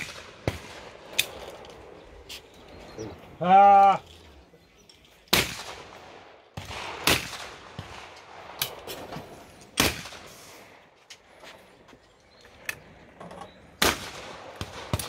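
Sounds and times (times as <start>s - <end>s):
shotgun shots with echo: 0.0s - 1.3s, 5.3s - 9.2s, 9.8s - 10.5s, 13.8s - 15.0s
faint shotgun shots: 0.0s - 1.4s, 5.3s - 10.6s, 13.8s - 15.0s.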